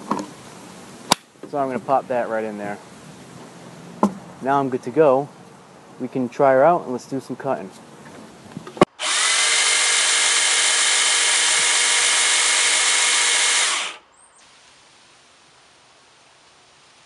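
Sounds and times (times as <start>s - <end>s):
pole saw motor whine: 8.9s - 14.0s.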